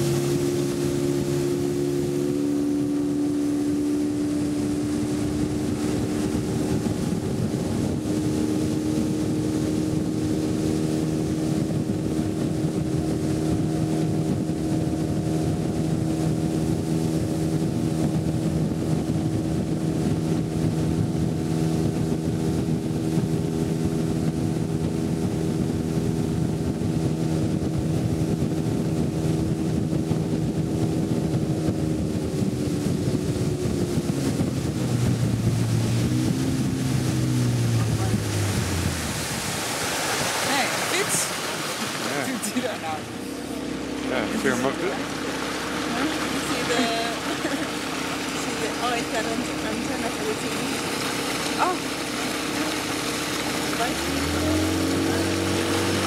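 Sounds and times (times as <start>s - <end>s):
motorboat engine running: 0.0s - 56.0s.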